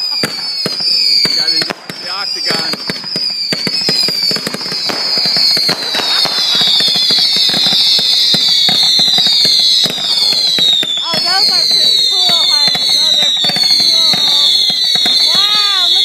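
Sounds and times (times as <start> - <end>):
firework whistles sliding down: 0.0 - 16.0.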